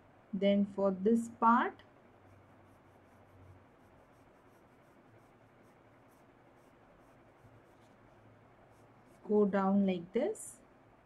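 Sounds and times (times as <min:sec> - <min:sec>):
pencil scratching on paper: 0:02.0 - 0:09.5.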